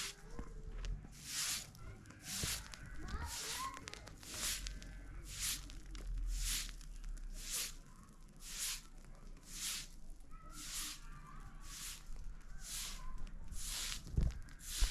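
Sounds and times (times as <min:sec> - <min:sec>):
footsteps crunching: 0:00.0 - 0:05.7.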